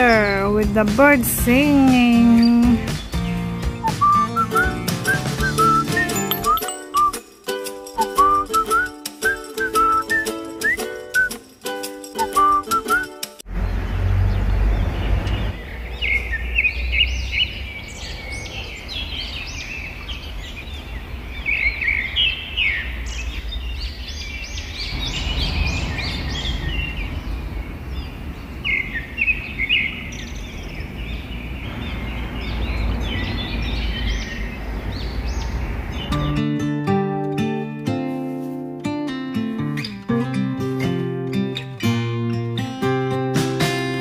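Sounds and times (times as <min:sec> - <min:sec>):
birds chirping and singing: 0:00.0 - 0:07.2, 0:12.2 - 0:36.5
low outdoor rumble: 0:24.7 - 0:33.1.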